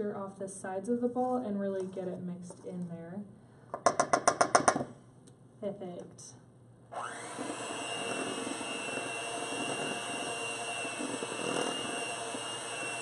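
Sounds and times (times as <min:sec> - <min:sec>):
electric hand mixer running: 0:06.9 - 0:13.0.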